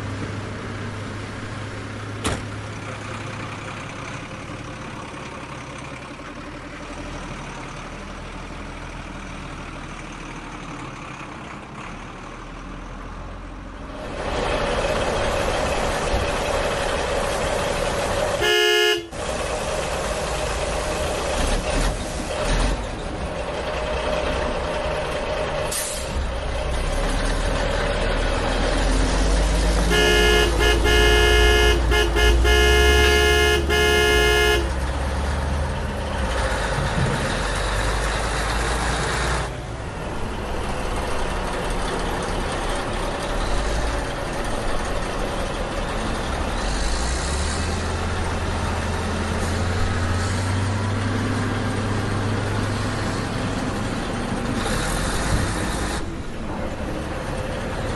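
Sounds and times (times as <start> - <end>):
truck engine rumbling: 0.0 - 57.9
truck horn toots: 18.3 - 19.5, 29.8 - 35.0.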